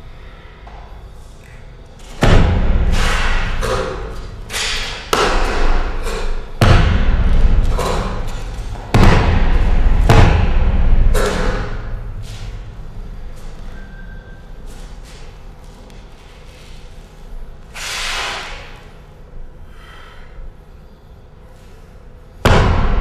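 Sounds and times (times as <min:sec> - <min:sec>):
heavy foot stamps: 0:02.1 - 0:13.6
forceful strikes: 0:02.2 - 0:12.7, 0:22.4 - 0:23.0.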